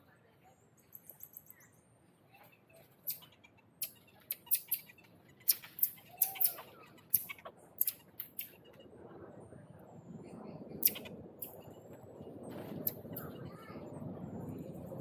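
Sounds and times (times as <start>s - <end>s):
high-pitched animal chirps: 3.1s - 8.6s, 10.8s - 11.1s.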